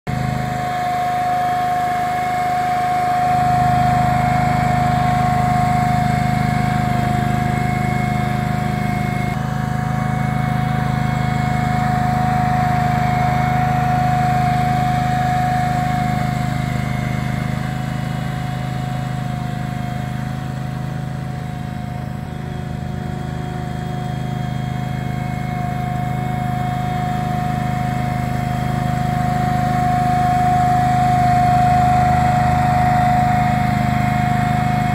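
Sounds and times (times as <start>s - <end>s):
small engine hum: 0.1s - 34.9s
steady high whine: 0.1s - 34.9s.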